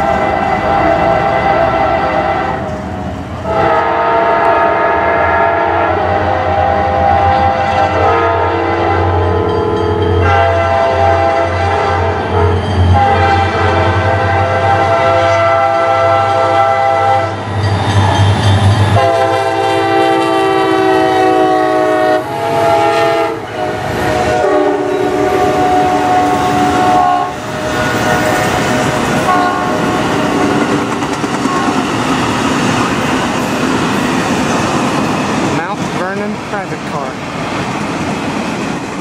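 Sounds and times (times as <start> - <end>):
train cars rolling on rails: 0.0 - 39.0
locomotive horn blasts: 3.5 - 17.4, 19.0 - 29.9.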